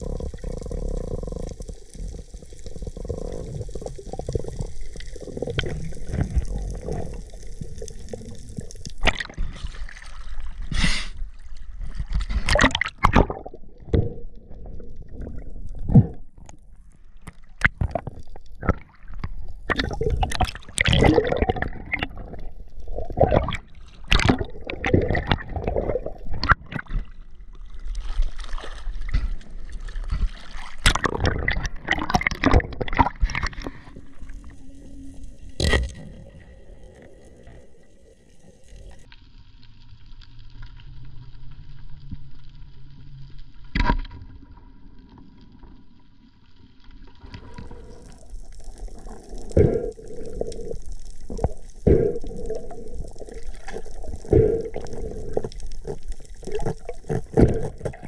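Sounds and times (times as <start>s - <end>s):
sea water gurgling and sloshing: 0.0s - 58.0s
splashes and knocks: 23.2s - 27.1s.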